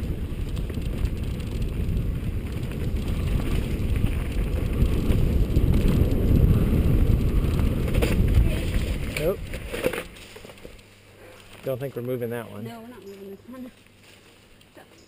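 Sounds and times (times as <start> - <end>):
wind buffeting microphone: 0.0 - 9.7
mountain bike rumbling and rattling: 0.0 - 14.4.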